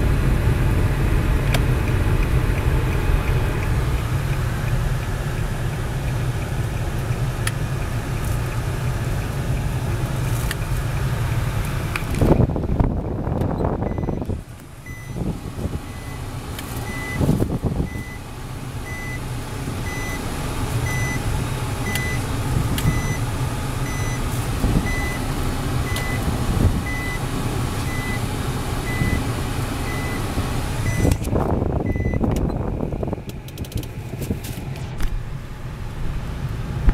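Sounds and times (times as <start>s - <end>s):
engine and tyre rumble: 0.0s - 36.9s
reverse warning beeps: 13.8s - 14.2s, 14.8s - 15.2s, 15.8s - 18.2s, 18.8s - 19.2s, 19.8s - 20.2s, 20.8s - 21.2s, 21.8s - 22.2s, 22.9s - 23.2s, 23.8s - 24.2s, 24.8s - 25.2s, 25.8s - 26.2s, 26.8s - 27.2s, 27.9s - 28.2s, 28.8s - 29.2s, 29.9s - 31.2s, 31.8s - 32.3s.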